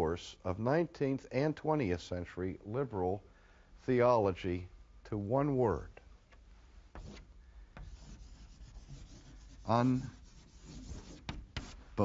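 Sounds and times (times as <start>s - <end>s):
chalk tap: 6.9s - 11.8s
chalk scratching on blackboard: 6.9s - 12.0s.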